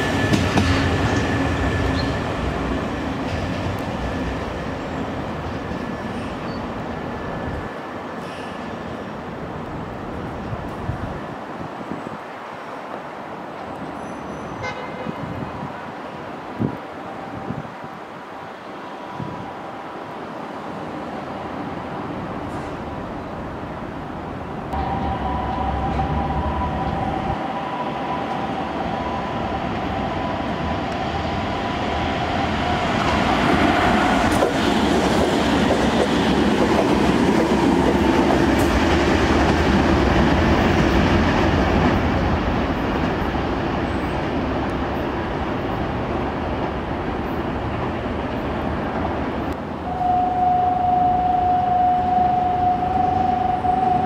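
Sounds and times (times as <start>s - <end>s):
electric train passing at speed: 0.0s - 54.0s.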